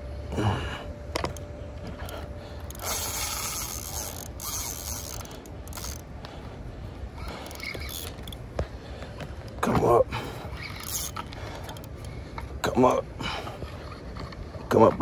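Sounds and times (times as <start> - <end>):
steady low rumble: 0.0 - 15.0
fishing reel clicking and whirring: 2.0 - 8.5, 10.4 - 12.2.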